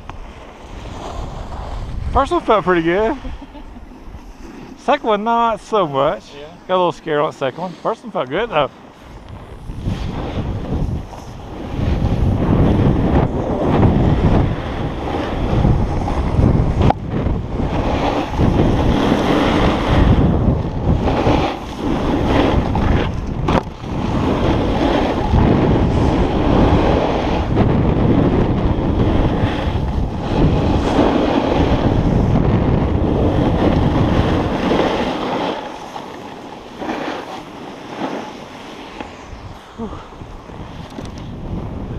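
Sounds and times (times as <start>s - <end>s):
snowboard scraping over snow: 0.0s - 41.9s
wind buffeting the microphone: 0.0s - 41.9s.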